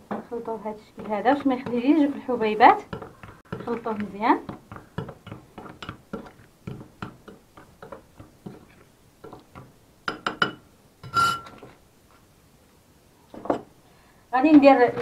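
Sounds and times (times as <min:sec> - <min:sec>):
metal spoon scraping glass bowl: 0:11.0 - 0:11.6.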